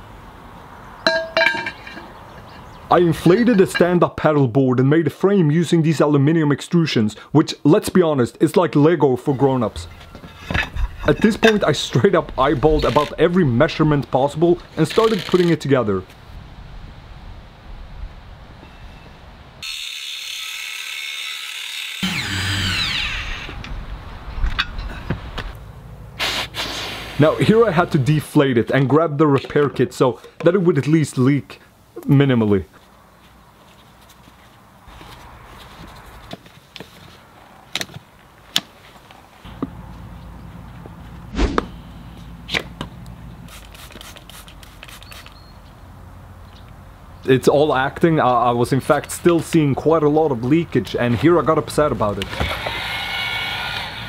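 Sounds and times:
power drill running: 19.6 - 23.6
low steady hum: 39.5 - 43.6.

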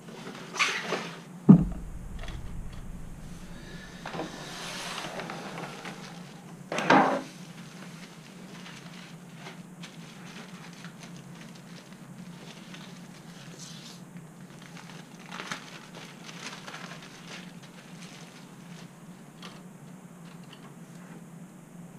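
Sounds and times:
knock on a workbench: 1.5 - 3.8
plastic packaging rustling: 7.4 - 13.6, 14.4 - 19.6.

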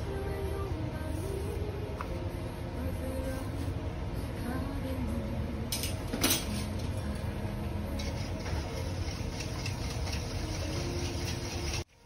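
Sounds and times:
faint steady hum: 0.0 - 11.0
kitchen equipment rumbling: 5.7 - 12.0.

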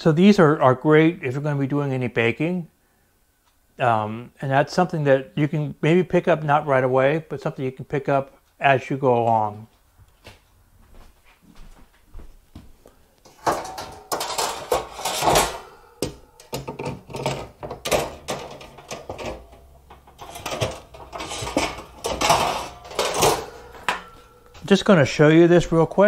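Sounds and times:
metal baking pans clattering: 13.3 - 24.9.

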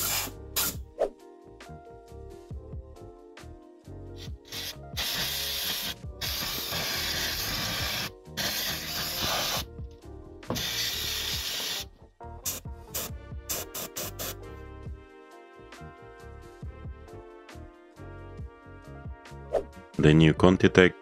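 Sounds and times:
aerosol spray hissing: 0.0 - 0.8, 4.2 - 9.7, 10.5 - 14.4
background music: 0.0 - 21.0.

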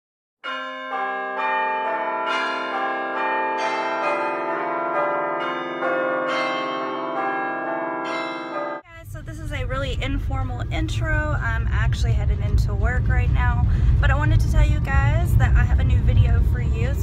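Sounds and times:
bells ringing a melody: 0.4 - 8.9.

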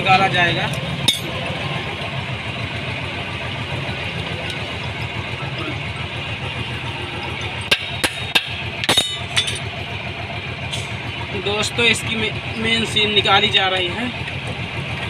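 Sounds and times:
engine running: 0.0 - 15.0.

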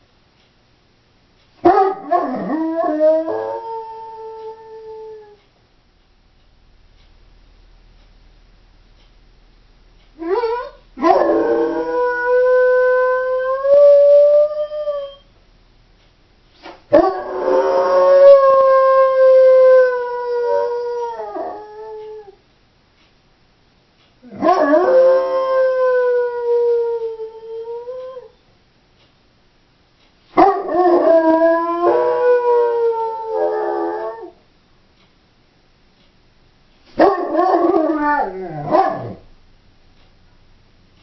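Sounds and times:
dog howling: 1.6 - 5.4, 10.2 - 15.2, 16.9 - 22.4, 24.3 - 28.3, 30.4 - 34.4, 37.0 - 39.3.

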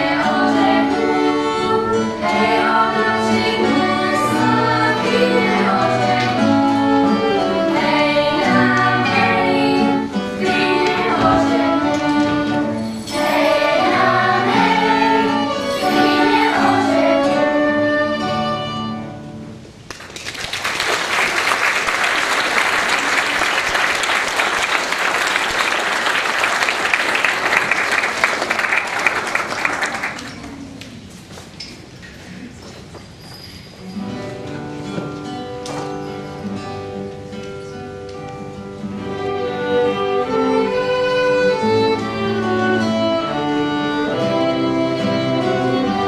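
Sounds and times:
children's choir singing: 0.0 - 18.7, 39.0 - 46.0
violin and cello: 0.0 - 19.0, 38.8 - 46.0
audience applause: 19.9 - 30.8.

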